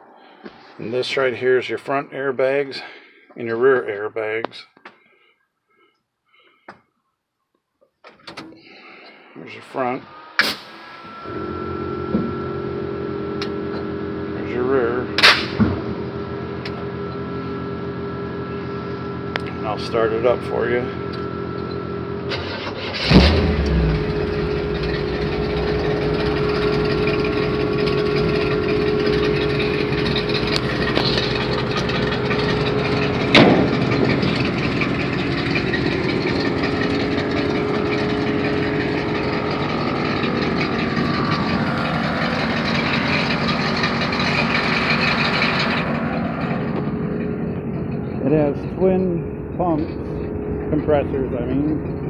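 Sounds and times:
car engine starting and idling: 0:09.4 - 0:52.0
sharp bang: 0:15.2 - 0:16.0, 0:33.3 - 0:34.4.

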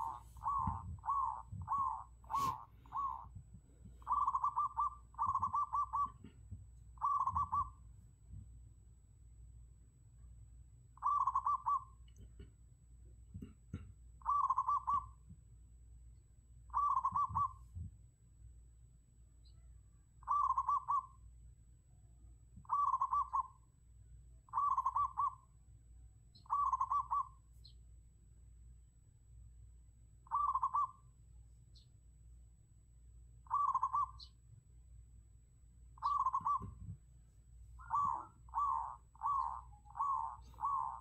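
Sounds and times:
dove cooing: 0:00.0 - 0:03.4, 0:04.0 - 0:06.4, 0:07.0 - 0:07.8, 0:11.0 - 0:12.0, 0:14.2 - 0:15.2, 0:16.7 - 0:17.6, 0:20.2 - 0:21.2, 0:22.6 - 0:23.6, 0:24.5 - 0:25.5, 0:26.4 - 0:27.4, 0:30.3 - 0:31.0, 0:33.5 - 0:34.3, 0:36.0 - 0:36.9, 0:37.8 - 0:41.0
faint low hum: 0:00.0 - 0:41.0.

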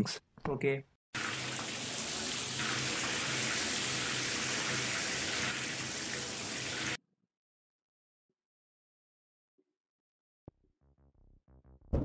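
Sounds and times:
shower water spraying: 0:01.2 - 0:07.0.

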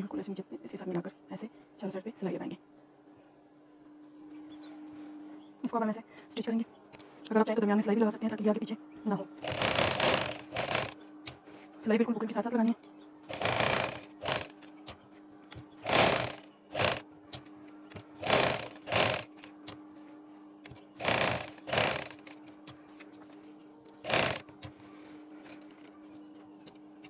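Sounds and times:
steady low hum: 0:00.0 - 0:27.0
sewing machine stitching: 0:09.4 - 0:11.0, 0:13.3 - 0:14.6, 0:15.8 - 0:17.0, 0:18.2 - 0:19.5, 0:21.0 - 0:22.3, 0:24.0 - 0:24.5.

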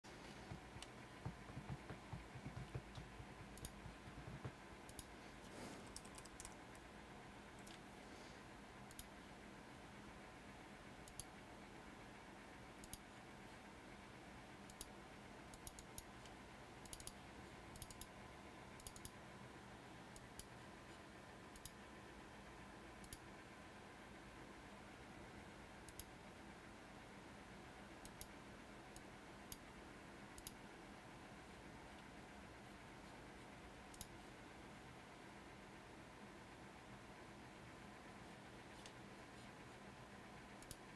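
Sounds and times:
low room hum: 0:00.0 - 0:40.9
computer mouse clicking: 0:00.5 - 0:05.2, 0:05.9 - 0:06.9, 0:07.6 - 0:07.9, 0:08.9 - 0:09.2, 0:11.0 - 0:11.3, 0:12.8 - 0:13.1, 0:14.6 - 0:18.2, 0:18.8 - 0:19.2, 0:20.1 - 0:20.6, 0:21.5 - 0:21.8, 0:23.0 - 0:23.3, 0:25.8 - 0:26.1, 0:28.0 - 0:29.6, 0:30.4 - 0:30.6, 0:33.9 - 0:34.2, 0:40.6 - 0:40.9.

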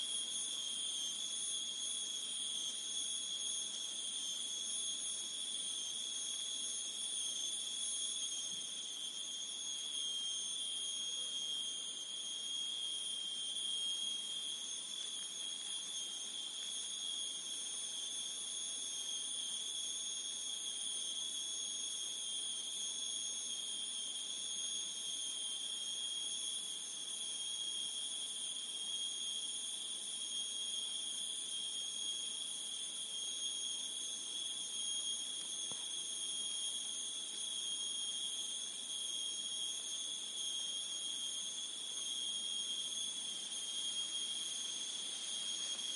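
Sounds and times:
insects shrilling: 0:32.7 - 0:45.9.

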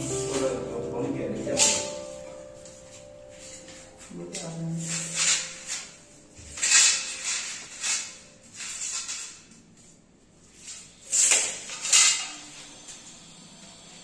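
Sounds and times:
metal frames scraping and sliding: 0:04.8 - 0:09.6.

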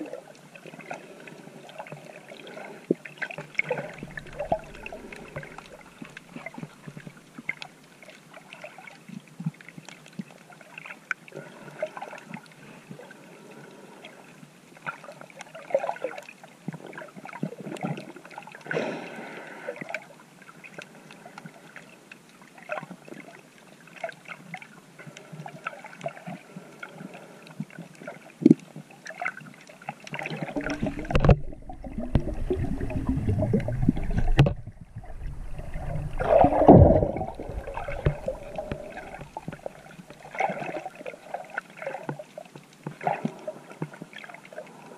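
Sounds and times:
low sloshing and rumbling water: 0:00.0 - 0:09.7, 0:25.5 - 0:44.9
underwater clicks and gurgles: 0:00.0 - 0:44.9.

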